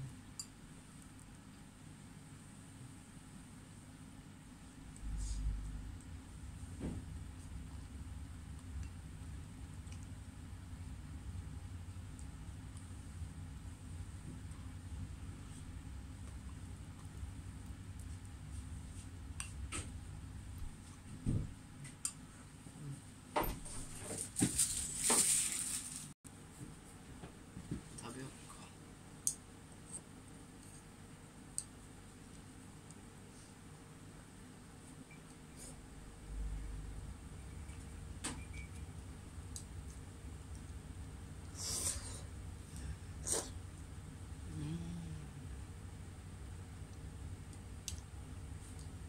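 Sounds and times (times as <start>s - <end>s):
low steady hum: 0.0s - 24.9s, 25.5s - 49.0s
chopsticks clicking against a bowl: 29.2s - 29.4s.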